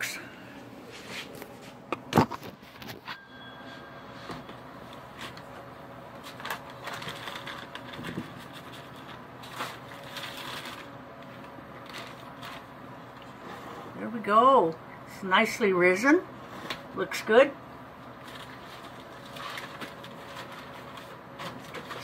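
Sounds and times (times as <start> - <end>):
plastic wrap crinkling: 4.9 - 13.2, 18.0 - 22.0.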